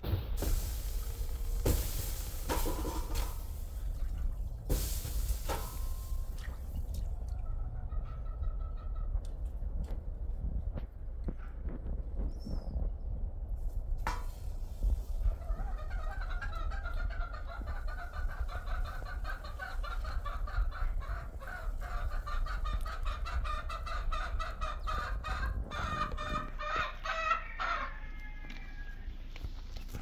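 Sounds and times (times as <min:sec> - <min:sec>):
chicken clucking: 0:07.1 - 0:10.0, 0:15.1 - 0:30.0.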